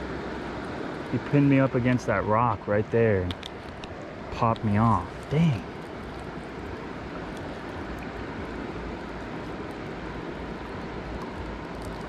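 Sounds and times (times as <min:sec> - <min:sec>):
river water rushing: 0:00.0 - 0:12.0.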